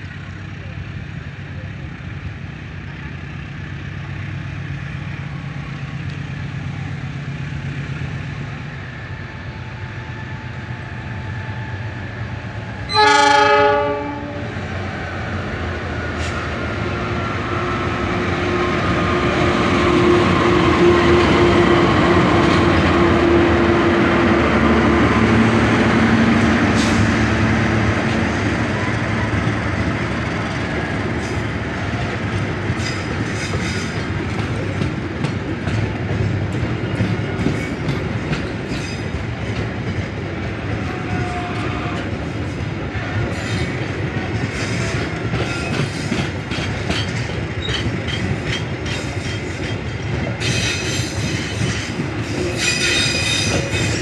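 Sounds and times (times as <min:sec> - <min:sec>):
locomotive engine: 0:00.0 - 0:54.0
locomotive horn blast: 0:12.9 - 0:14.6
wheels clicking over rail joints: 0:28.9 - 0:54.0.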